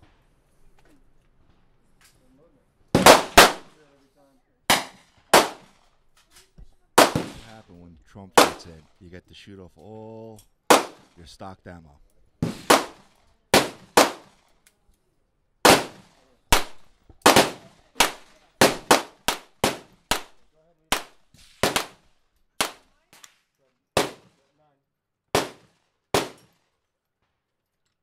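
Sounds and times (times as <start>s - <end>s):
gunshots with echo: 3.0s - 3.8s, 4.7s - 5.8s, 7.0s - 9.0s, 10.7s - 11.3s, 12.4s - 14.4s, 15.6s - 22.0s, 24.0s - 24.4s, 25.4s - 26.5s.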